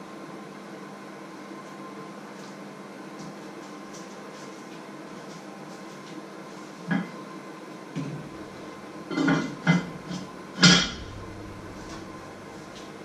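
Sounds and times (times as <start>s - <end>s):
pots and pans clanking: 9.1s - 12.0s.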